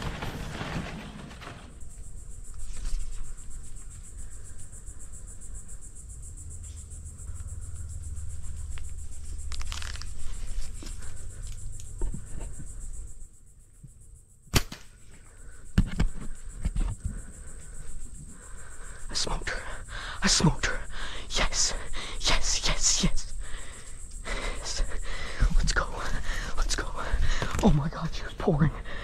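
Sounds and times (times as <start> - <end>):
rustling in dry leaves: 8.5 - 11.3
bow string snap: 14.5 - 15.0.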